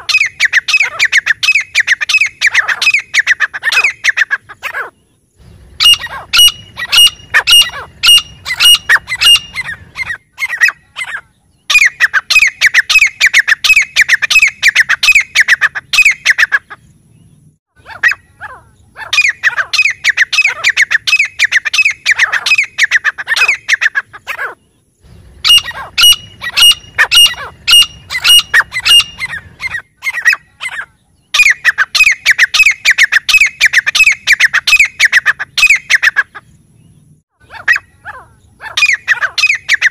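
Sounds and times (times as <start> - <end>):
francolin calling shrilly: 0.0 - 5.0, 5.7 - 16.9, 17.8 - 24.7, 25.4 - 36.5, 37.4 - 39.9.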